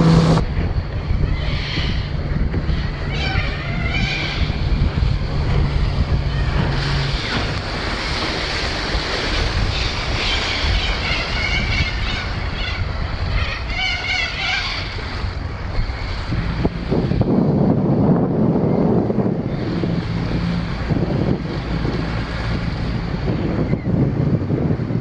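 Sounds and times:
choppy water: 0.0s - 25.0s
outboard motor running: 0.0s - 25.0s
wind buffeting microphone: 0.0s - 25.0s.

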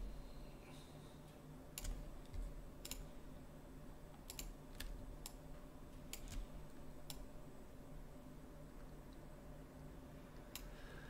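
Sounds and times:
faint low hum: 0.0s - 11.0s
keyboard and mouse clicks: 1.7s - 3.1s, 4.1s - 5.4s, 6.1s - 7.3s.

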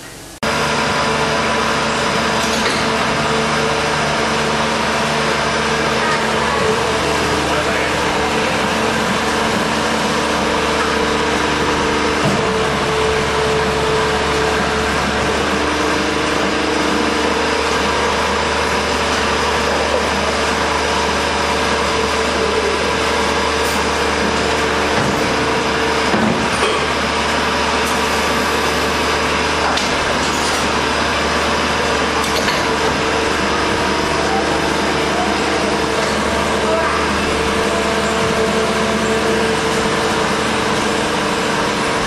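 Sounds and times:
factory machinery droning: 0.0s - 42.0s.

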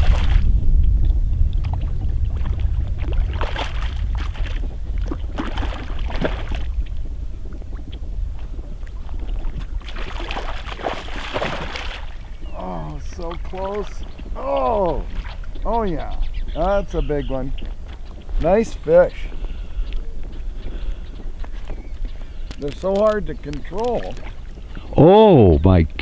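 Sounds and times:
fish splashing in water: 0.0s - 0.5s, 1.6s - 16.0s, 22.3s - 24.8s
wind rumble on microphone: 0.0s - 26.0s.

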